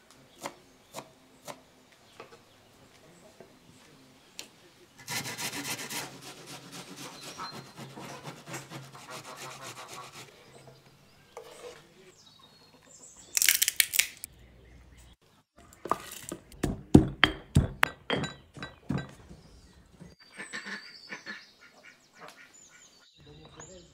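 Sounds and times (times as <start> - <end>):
spoon scraping wooden board: 5.0 - 11.9, 15.8 - 16.6
pestle knocking in stone mortar: 16.6 - 19.2.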